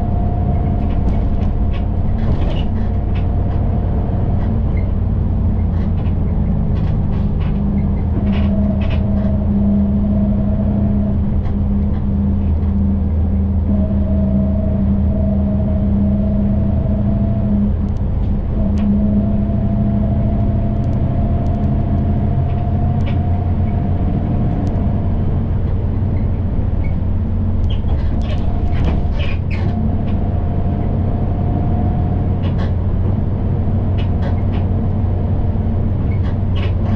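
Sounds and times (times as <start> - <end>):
bus engine drone: 0.0 - 36.9
thin engine whine: 0.0 - 36.9
light rattles and clicks: 0.4 - 9.4, 20.3 - 36.9.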